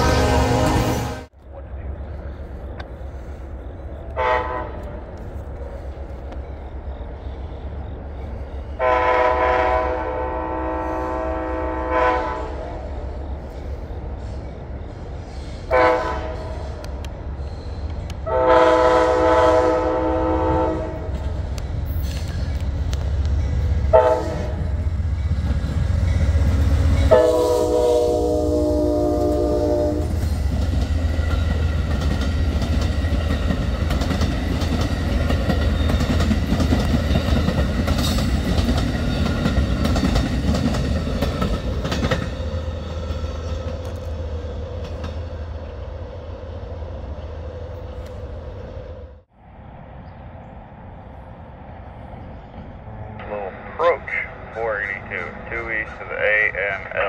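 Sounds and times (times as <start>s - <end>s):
locomotive horn blasts: 0.0s - 1.3s, 4.2s - 4.9s, 8.8s - 12.6s, 15.7s - 16.5s, 18.2s - 21.1s, 23.9s - 24.8s, 27.1s - 30.2s
train rumble: 0.0s - 57.0s
wheels clattering on rails: 30.2s - 44.1s.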